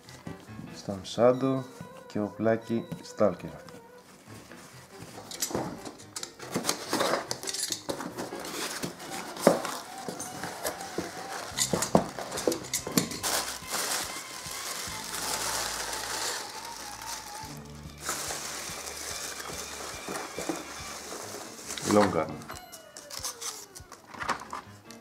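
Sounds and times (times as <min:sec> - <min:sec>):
plastic bags crinkling: 0:05.2 - 0:24.5
tissue paper rustling: 0:07.9 - 0:23.8.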